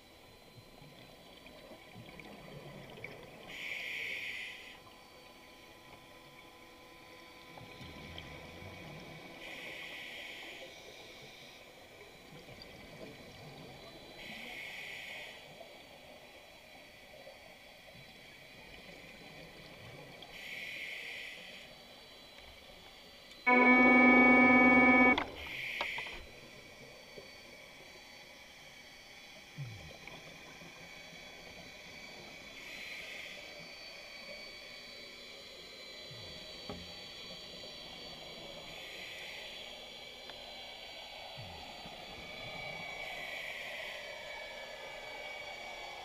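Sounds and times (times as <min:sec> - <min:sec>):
steady pitched tone: 0:23.5 - 0:25.2.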